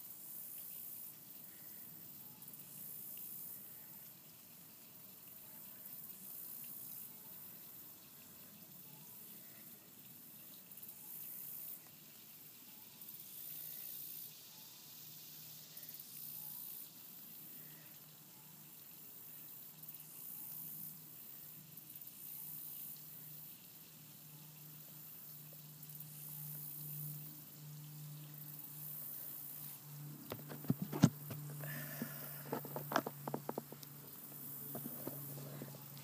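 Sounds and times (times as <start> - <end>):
faint running water hiss: 0.0 - 36.0
low steady hum: 20.8 - 36.0.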